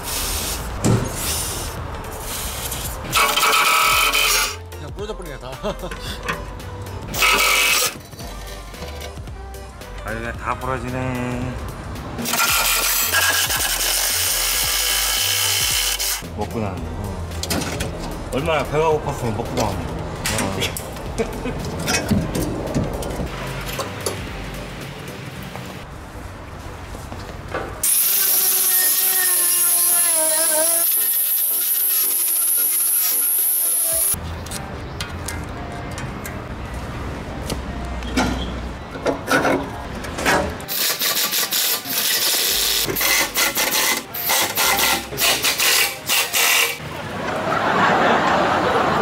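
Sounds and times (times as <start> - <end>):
pneumatic impact wrench hammering: 0.0 - 4.6, 7.1 - 8.1, 12.2 - 16.2, 27.8 - 34.2, 40.2 - 46.8
angle grinder brush wheel on metal: 2.2 - 4.6, 7.1 - 9.1, 12.2 - 16.2, 27.8 - 34.2, 40.7 - 46.8.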